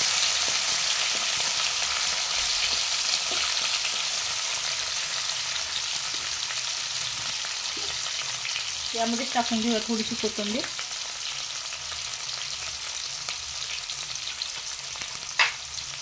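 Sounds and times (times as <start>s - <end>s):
food sizzling in hot oil: 0.0s - 16.0s
spoon scraping a pan: 2.6s - 3.8s, 7.6s - 8.1s.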